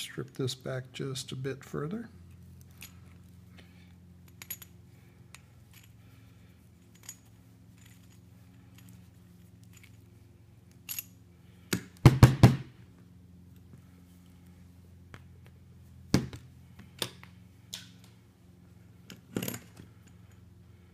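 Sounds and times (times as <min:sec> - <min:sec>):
low steady hum: 0:00.0 - 0:20.9.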